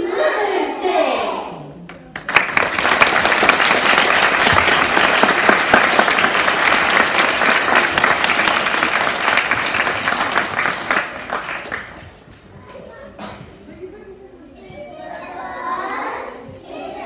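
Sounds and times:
audience applauding: 2.1s - 12.2s.

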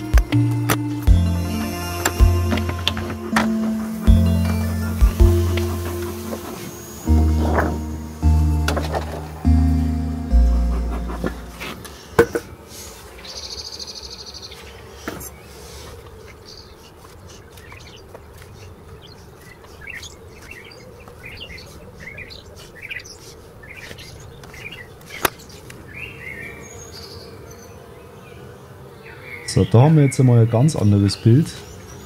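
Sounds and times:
honeybees humming: 0.0s - 32.0s
small birds chirping: 0.0s - 32.0s.

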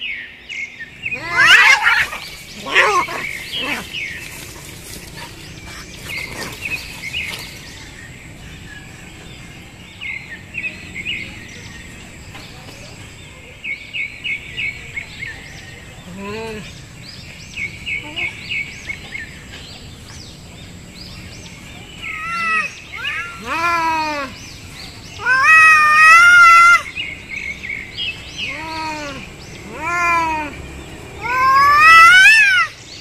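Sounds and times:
small birds chirping: 0.0s - 33.0s
cats screeching: 1.0s - 6.6s, 22.0s - 24.4s, 25.2s - 27.0s, 28.4s - 30.6s, 31.2s - 32.8s
cat yowling: 1.2s - 4.0s, 22.1s - 24.3s, 25.2s - 26.9s, 28.5s - 30.6s, 31.2s - 32.7s.

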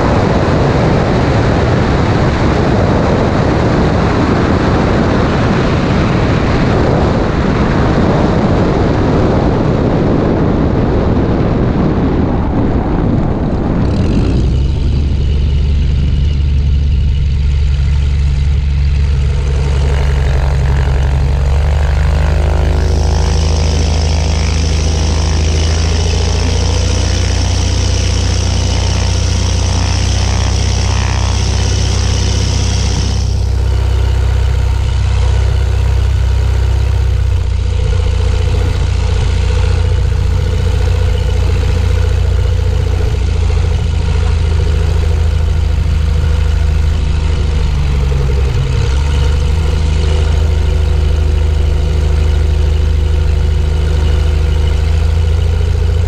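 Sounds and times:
propeller plane engine: 0.0s - 56.0s.

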